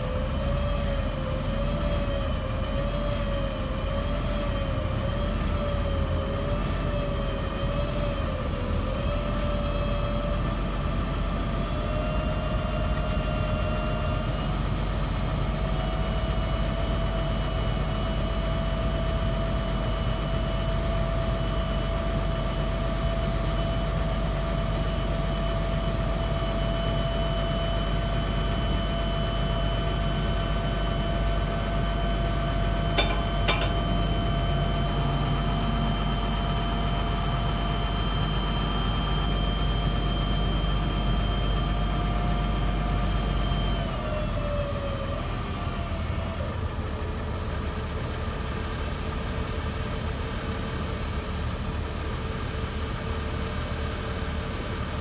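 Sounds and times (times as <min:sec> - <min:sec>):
diesel truck engine running: 0:00.0 - 0:55.0
hydraulic whine: 0:26.6 - 0:36.7.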